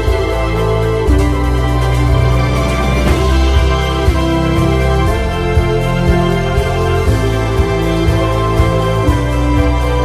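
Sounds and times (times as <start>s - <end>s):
music with sustained chords: 0.0s - 10.0s
low beat: 1.7s - 5.2s.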